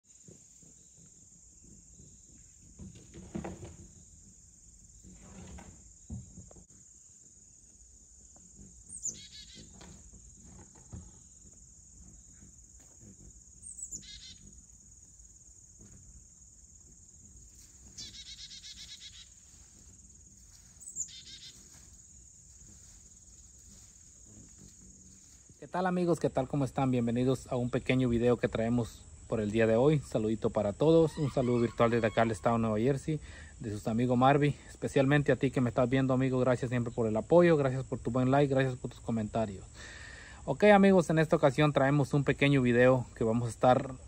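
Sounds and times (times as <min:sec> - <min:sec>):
cricket chorus: 0:00.0 - 0:44.0
bird chirping: 0:08.6 - 0:11.4, 0:12.0 - 0:14.7, 0:17.8 - 0:19.6, 0:20.8 - 0:21.8, 0:30.1 - 0:32.7
bird trill: 0:08.9 - 0:09.8, 0:13.6 - 0:14.5, 0:17.9 - 0:19.4, 0:20.8 - 0:21.6, 0:30.9 - 0:32.7.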